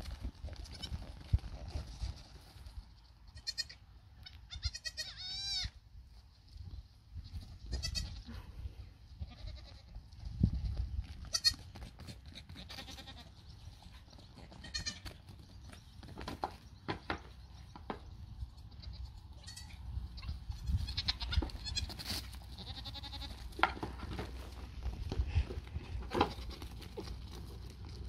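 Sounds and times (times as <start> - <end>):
goat kids bleating: 0.5 - 1.1, 1.8 - 2.5, 3.3 - 5.8, 7.2 - 8.5, 9.1 - 10.0, 10.6 - 13.5, 14.3 - 15.3, 18.6 - 23.6, 26.0 - 27.0.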